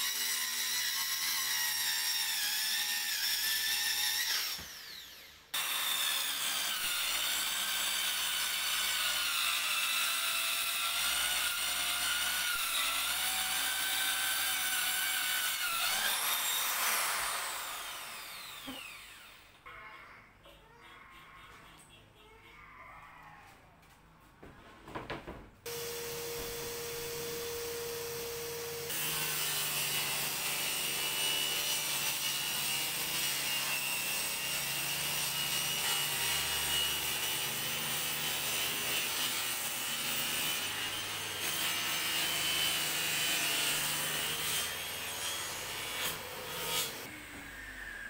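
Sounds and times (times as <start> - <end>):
table saw cutting plywood: 0.0 - 19.5, 25.7 - 48.0
high whine of saw blade: 25.7 - 29.5, 47.0 - 48.0.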